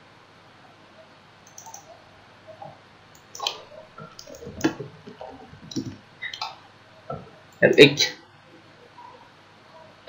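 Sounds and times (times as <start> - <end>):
mouse clicks: 1.4 - 1.9, 3.2 - 3.6, 4.2 - 4.8
keyboard keystrokes: 1.5 - 1.8, 3.2 - 3.6, 4.2 - 4.8, 5.7 - 6.4.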